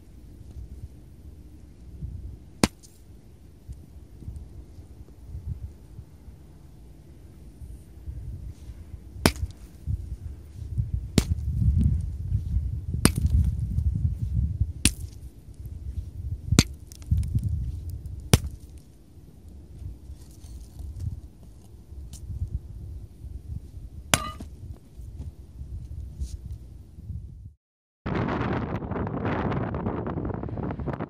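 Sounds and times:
low rumbling noise: 0.0 - 31.0
sledgehammer strikes: 2.6 - 3.0, 9.2 - 9.7, 24.1 - 24.5.

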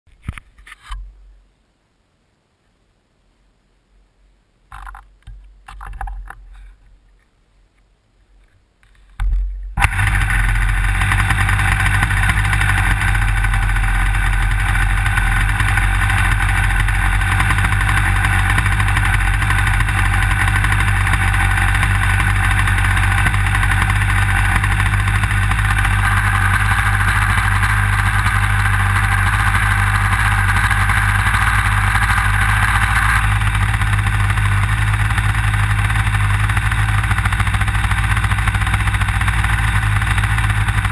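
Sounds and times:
propeller flicked by hand: 8.8 - 40.9
model airplane engine running: 9.8 - 40.9.

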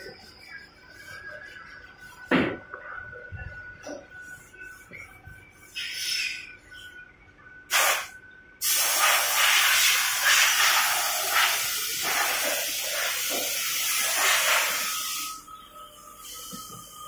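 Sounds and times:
compressed air hissing: 5.8 - 6.5, 7.7 - 15.4.

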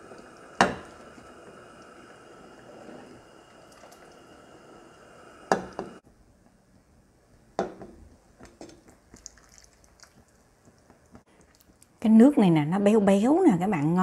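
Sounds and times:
liquid dripping: 8.4 - 12.0.

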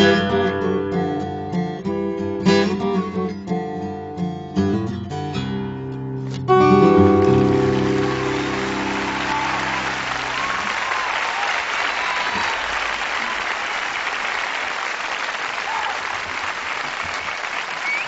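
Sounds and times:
acoustic guitar chord ringing: 0.0 - 10.7
audience applauding: 7.0 - 18.0
scattered cheers: 7.2 - 18.0.

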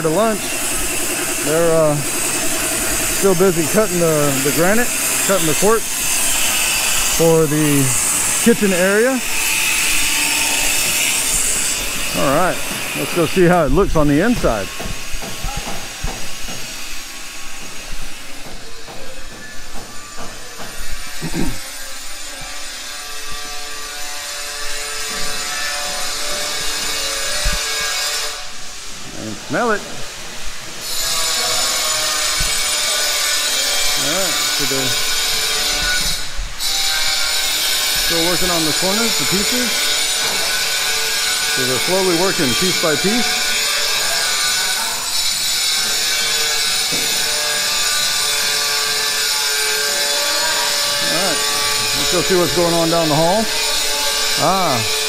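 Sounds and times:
power tool grinding: 0.0 - 55.0.

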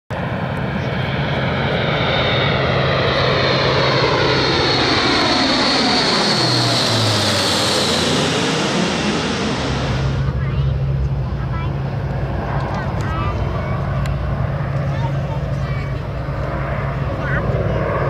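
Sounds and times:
turboprop aircraft flyby drone: 0.1 - 18.0.

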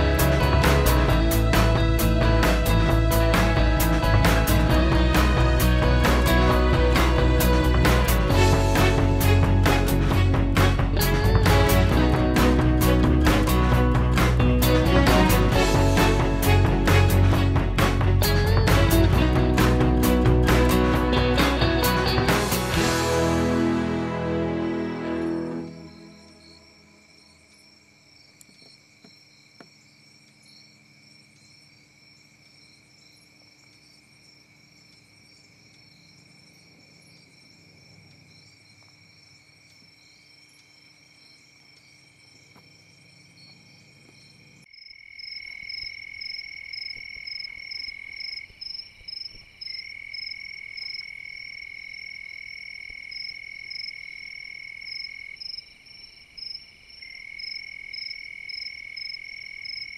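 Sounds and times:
insects trilling: 25.7 - 59.9
rapid pulsing insect chirps: 25.7 - 59.9.

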